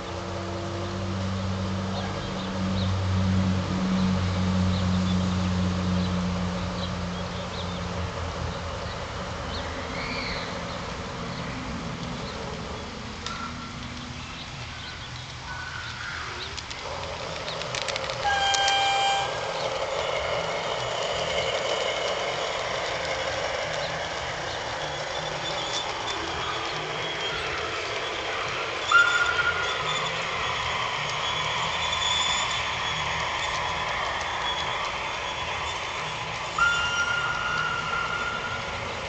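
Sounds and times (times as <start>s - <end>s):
model train running: 0.0s - 39.0s
model train electronic horn: 18.2s - 19.8s, 28.9s - 30.3s, 36.5s - 38.9s.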